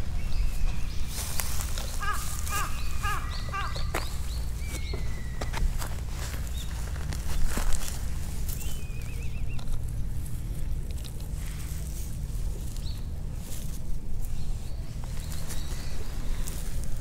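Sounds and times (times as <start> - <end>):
low rumble: 0.0 - 17.0
rustles in dry grass: 0.0 - 17.0
wavering bird call: 1.9 - 5.6.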